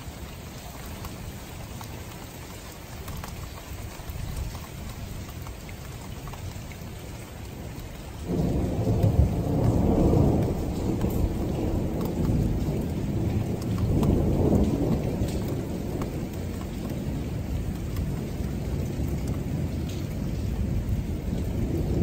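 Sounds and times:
steady rain: 0.0s - 22.0s
low rumble of thunder: 8.2s - 22.0s.

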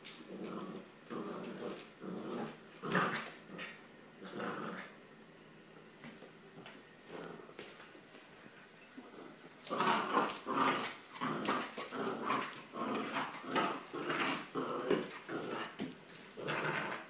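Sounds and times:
puppy growling: 0.1s - 5.0s, 7.0s - 7.6s, 9.0s - 17.0s.

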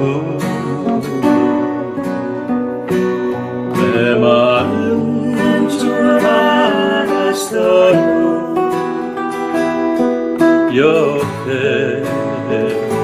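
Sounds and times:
acoustic guitars playing: 0.0s - 13.0s
man and woman singing: 3.7s - 9.2s, 10.7s - 13.0s.

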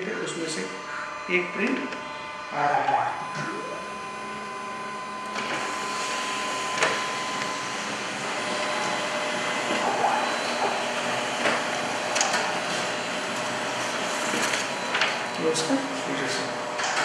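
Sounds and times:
copier whirring: 0.0s - 17.0s
paper feed clicks: 11.4s - 15.2s.

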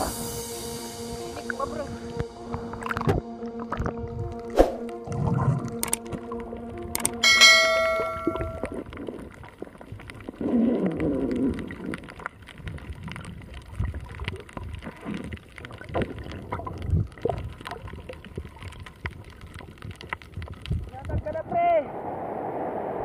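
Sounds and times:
muffled underwater gurgling: 1.3s - 6.6s, 8.6s - 21.4s
bell-like chime: 7.2s - 8.8s.

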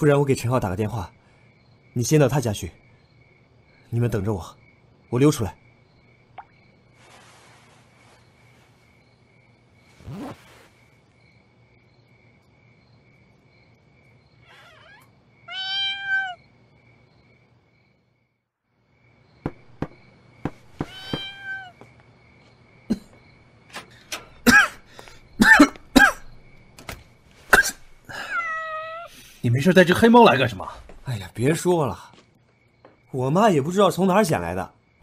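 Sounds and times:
cat meowing: 14.4s - 16.4s, 20.8s - 21.8s, 28.2s - 29.1s.

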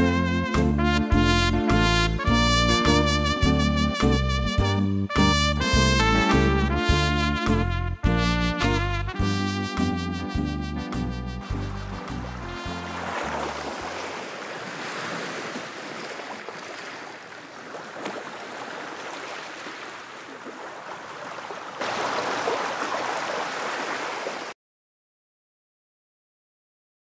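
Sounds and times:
big band music with trumpet: 0.0s - 13.5s
sea surf: 11.5s - 24.6s.

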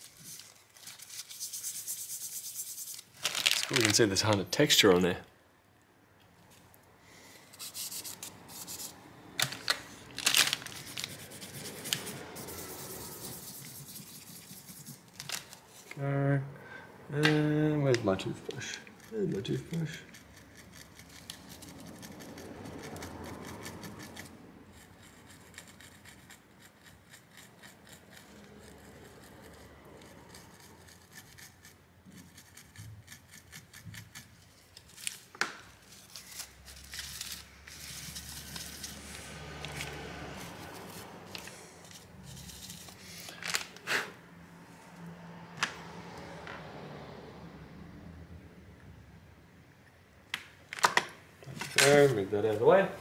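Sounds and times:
soft rubbing and handling: 0.0s - 4.4s, 7.4s - 16.0s, 33.5s - 43.8s
toothbrush scrubbing circuit board: 10.7s - 15.2s, 18.5s - 34.4s.

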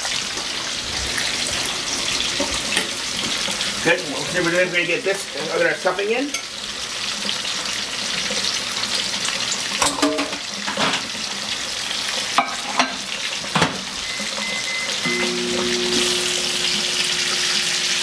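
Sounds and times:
meat sizzling in a frying pan: 0.0s - 18.0s
utensils knocking against pans: 9.8s - 11.1s, 12.4s - 13.9s
low steady hum: 15.0s - 18.0s.

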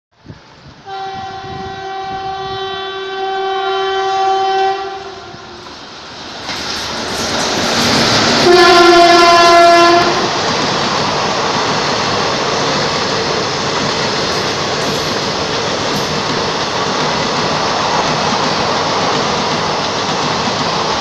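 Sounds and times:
train passing: 0.2s - 21.0s
train horn blast: 0.8s - 5.8s, 8.4s - 10.4s.

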